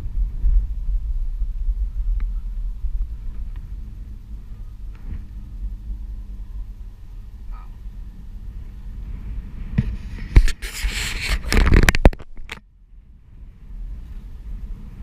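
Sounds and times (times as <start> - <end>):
rolling rumble: 0.0 - 15.0
wind on microphone: 0.0 - 15.0
loud crackling scraping noise: 9.1 - 12.6.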